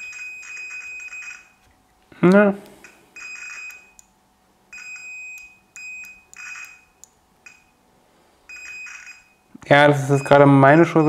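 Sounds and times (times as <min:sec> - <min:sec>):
multimeter continuity beep: 0:02.8 - 0:04.1, 0:04.7 - 0:07.8, 0:08.5 - 0:11.0.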